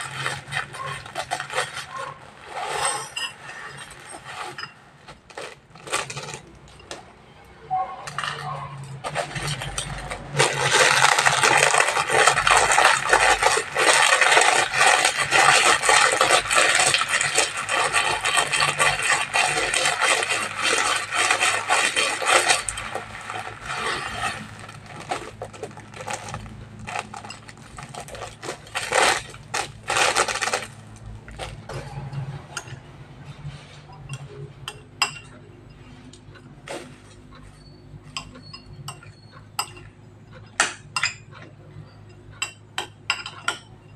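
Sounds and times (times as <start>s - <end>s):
plastic packets crinkling and tearing: 0.0s - 3.1s, 3.7s - 6.6s, 8.1s - 31.7s
metal spoon scraping ceramic bowl: 0.0s - 4.9s, 7.7s - 25.4s, 31.7s - 39.9s
plastic sachets rustling: 0.0s - 6.6s, 8.1s - 31.7s.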